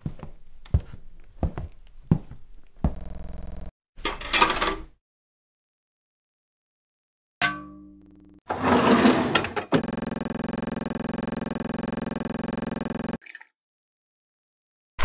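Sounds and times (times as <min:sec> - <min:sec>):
electronic buzz: 0:02.9 - 0:03.7, 0:08.0 - 0:08.4, 0:09.8 - 0:13.2.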